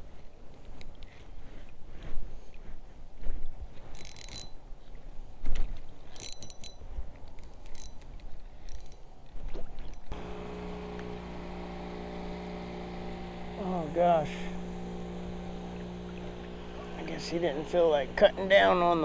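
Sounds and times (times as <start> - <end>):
motorboat engine drone: 10.1 - 19.0.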